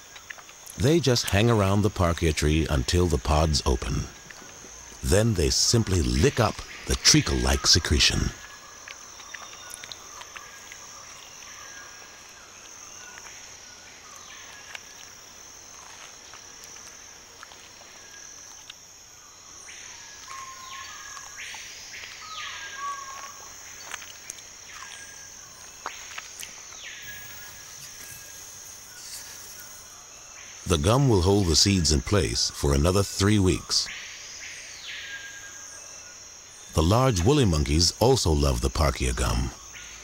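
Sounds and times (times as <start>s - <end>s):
insect drone: 0.0s - 40.0s.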